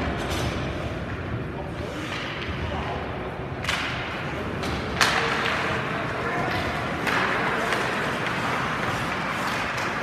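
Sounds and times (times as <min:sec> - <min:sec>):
hockey sticks and puck clacking: 0:00.0 - 0:10.0
skates on ice: 0:03.7 - 0:10.0.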